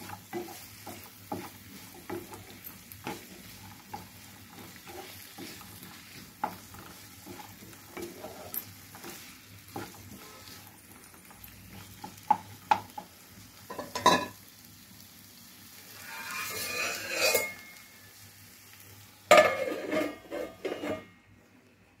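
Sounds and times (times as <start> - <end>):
wooden spatula scraping pan: 0.0 - 10.8, 15.9 - 17.8, 19.4 - 21.1
food sizzling: 0.0 - 21.5
glass pan lid clattering: 13.7 - 14.4.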